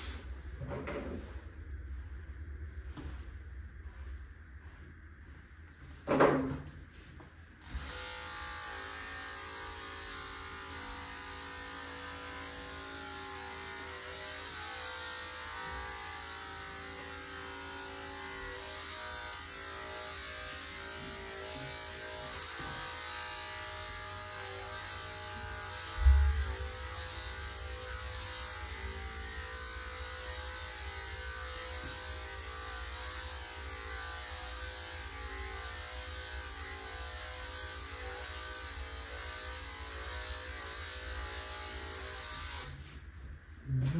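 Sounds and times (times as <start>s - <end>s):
electric clippers running: 7.6s - 43.0s.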